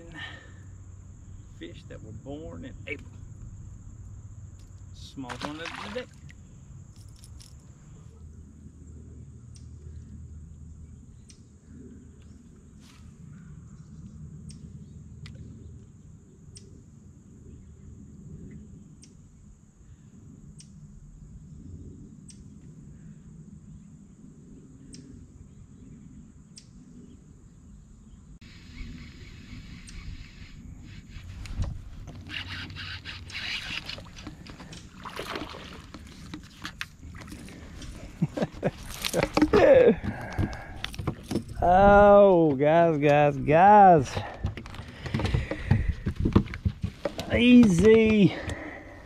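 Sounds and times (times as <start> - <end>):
water and boat noise: 0.0 - 13.2, 29.2 - 49.0
splash: 5.3 - 6.3, 34.9 - 37.7
fishing reel whirring and clicking: 32.1 - 34.4.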